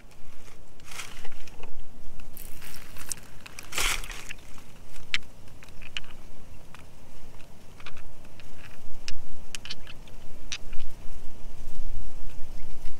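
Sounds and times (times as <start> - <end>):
stones scraping in hand: 0.0 - 1.6, 2.2 - 6.2
stones clicking together: 0.8 - 10.9.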